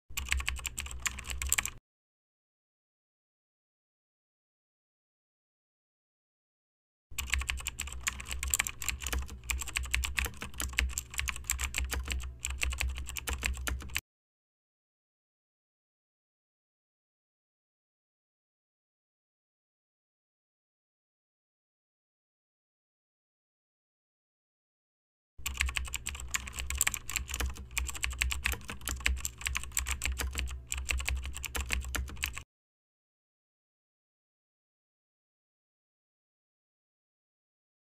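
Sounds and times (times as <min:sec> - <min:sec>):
keyboard key clicks: 0:25.4 - 0:32.4.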